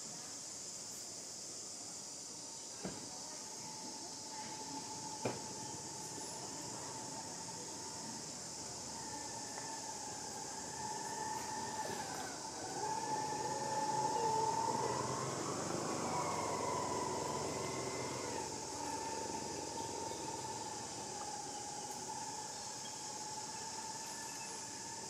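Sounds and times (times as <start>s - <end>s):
droning tone with insect-like buzz: 0.0s - 25.0s.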